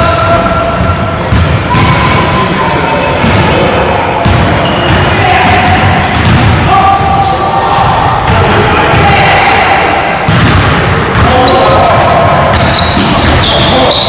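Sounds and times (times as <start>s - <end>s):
sneakers squeaking: 0.0s - 9.0s, 10.1s - 14.0s
players calling out: 0.0s - 14.0s
basketball bouncing: 0.8s - 2.2s, 4.2s - 6.7s, 10.3s - 11.4s, 12.5s - 13.6s.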